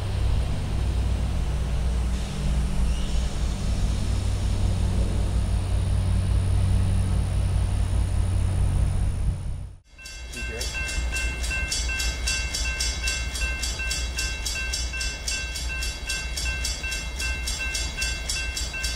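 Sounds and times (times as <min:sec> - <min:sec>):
locomotive diesel engine drone: 0:00.0 - 0:18.9.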